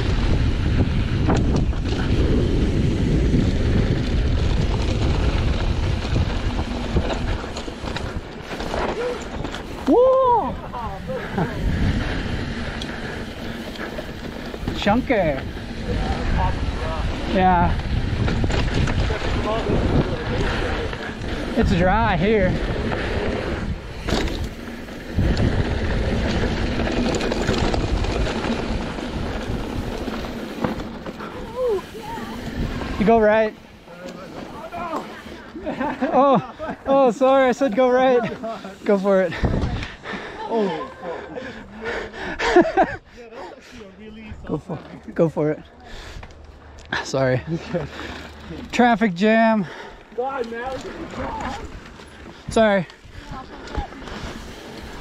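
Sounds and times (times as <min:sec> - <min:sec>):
wind buffeting microphone: 0:00.0 - 0:35.4, 0:39.3 - 0:40.4
bike rolling on dirt trail: 0:00.0 - 0:55.0.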